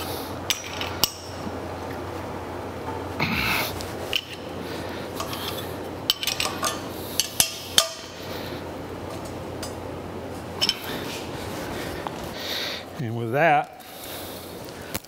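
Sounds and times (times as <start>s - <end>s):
steady low hum: 0.0s - 15.0s
wrenches clinking on bolts: 6.1s - 8.0s.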